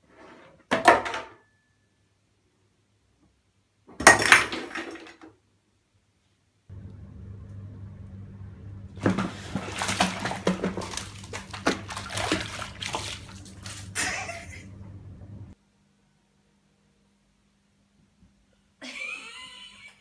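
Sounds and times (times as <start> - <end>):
steady low hum: 6.7 - 17.6
water splashing: 9.0 - 14.4.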